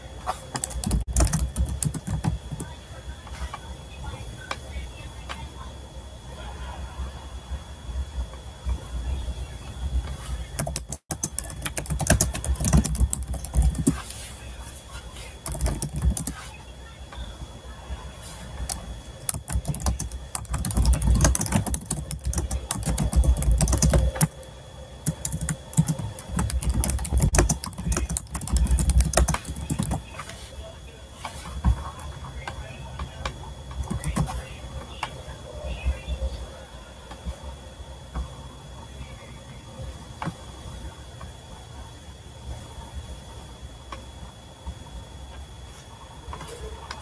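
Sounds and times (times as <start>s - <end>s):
keyboard typing: 0.5s - 2.7s, 10.5s - 14.2s, 15.4s - 16.4s, 18.6s - 30.3s, 33.7s - 34.4s.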